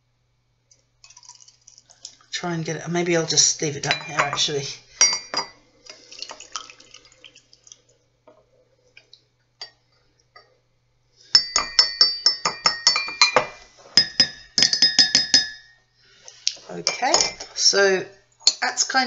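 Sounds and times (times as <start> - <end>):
teaspoon clinking against cup: 11.3 - 15.8.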